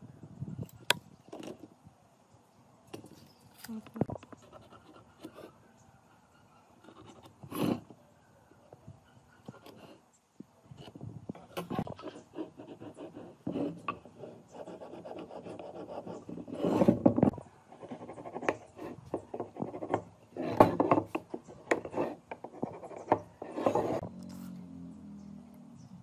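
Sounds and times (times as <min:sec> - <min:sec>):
scraping and rubbing on wood: 0:10.8 - 0:24.0.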